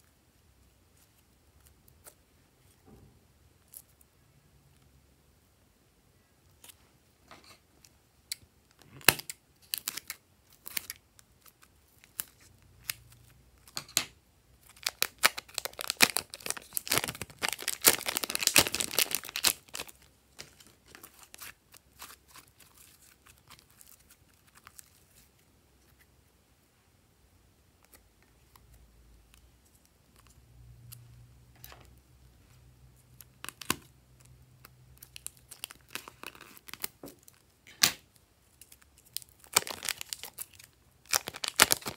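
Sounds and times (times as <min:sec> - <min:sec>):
plastic crinkling and tearing: 0:08.8 - 0:13.8, 0:14.6 - 0:25.3, 0:35.0 - 0:37.5, 0:38.5 - 0:41.9
sticky slime crackles: 0:14.6 - 0:25.4, 0:33.2 - 0:41.9.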